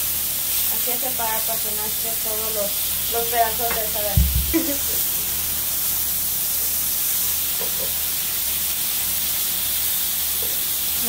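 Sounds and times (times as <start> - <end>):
meat sizzling on a griddle: 0.0 - 11.0
dull thump: 3.7 - 4.7.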